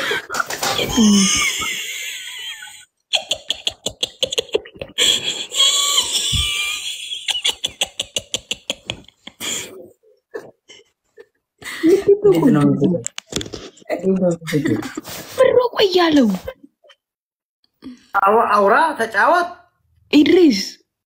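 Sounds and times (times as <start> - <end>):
people laughing hard: 0.0 - 9.7, 14.5 - 15.3.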